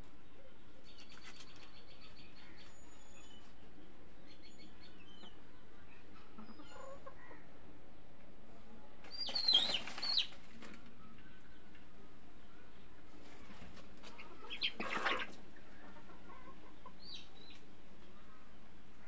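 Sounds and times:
chicks chirping: 9.1s - 10.5s, 13.3s - 17.6s
chicken squawking: 14.1s - 15.4s.

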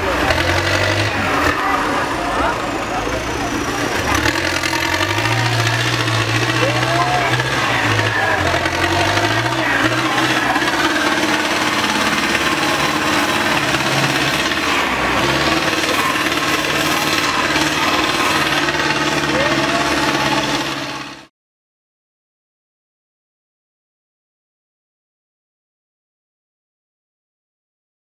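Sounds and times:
tractor diesel engine under load: 0.0s - 21.3s.

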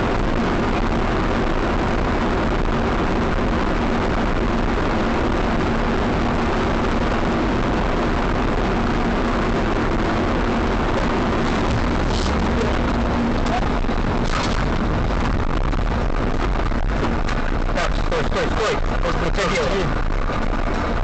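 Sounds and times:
car road and engine noise: 0.0s - 21.0s
faint low hum: 6.1s - 21.0s.

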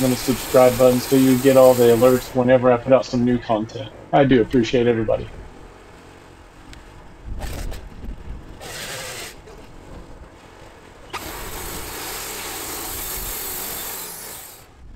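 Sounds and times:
saw blade hissing through log: 0.0s - 2.4s, 8.6s - 9.4s, 11.1s - 14.7s
sawmill engine rumbling: 0.0s - 14.9s.

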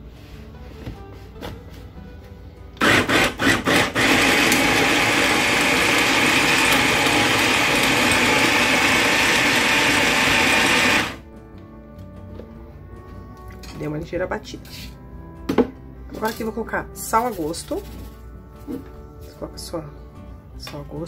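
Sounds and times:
electric food chopper running: 2.8s - 11.2s.

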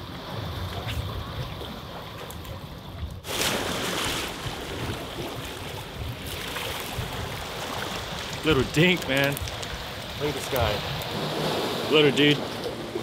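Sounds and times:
small waves against rocks: 3.2s - 13.0s
wind on microphone: 4.3s - 13.0s.

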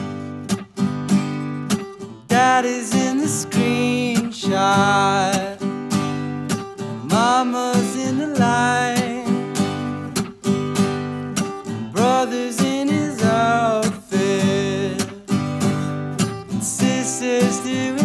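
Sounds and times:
strummed acoustic guitar: 0.0s - 18.0s
man singing: 2.2s - 6.0s, 6.9s - 10.2s, 11.7s - 18.0s.

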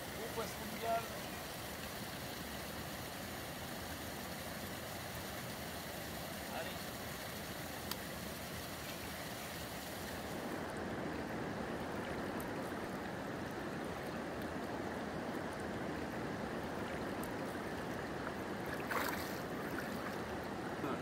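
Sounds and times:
river water rushing over stones: 0.0s - 21.0s
fish splashing into water: 18.6s - 20.3s.

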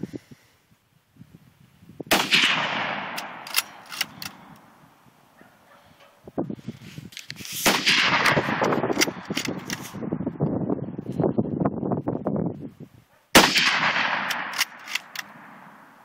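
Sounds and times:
rifle shots with rolling echo: 2.1s - 4.8s, 7.6s - 10.2s, 13.3s - 16.0s
rifle bolt clicking: 3.1s - 4.7s, 8.9s - 9.9s, 14.2s - 15.4s.

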